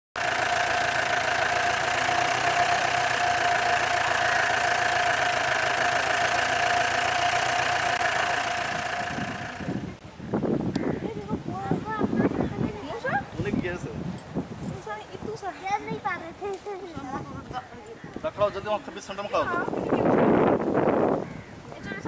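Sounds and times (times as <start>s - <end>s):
car engine idling: 0.2s - 10.0s
steady high tone: 0.2s - 10.0s.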